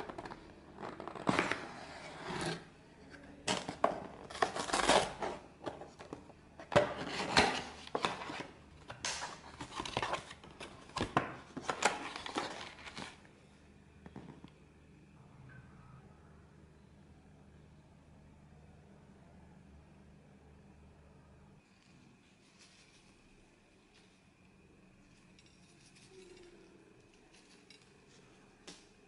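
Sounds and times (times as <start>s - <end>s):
cardboard boxes scraping and rustling: 0.8s - 2.7s.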